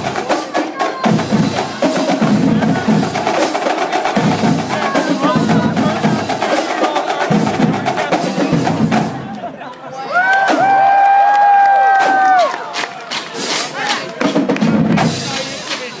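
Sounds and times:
marching drumline cadence: 0.0s - 9.6s, 11.8s - 16.0s.

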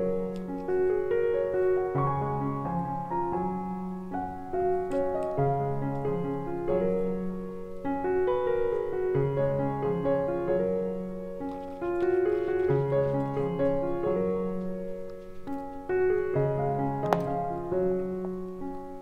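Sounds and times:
gentle piano music: 0.0s - 19.0s.

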